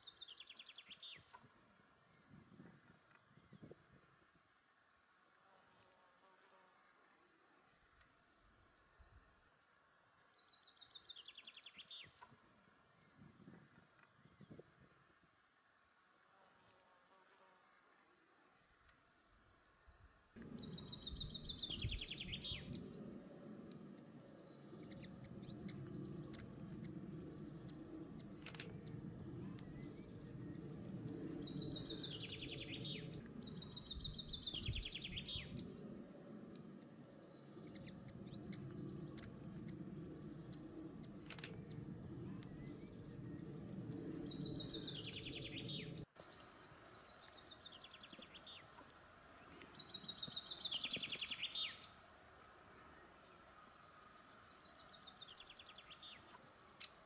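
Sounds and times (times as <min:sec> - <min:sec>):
low background hum: 0:12.1 - 0:57.0
songbird trilling: 0:20.4 - 0:22.9.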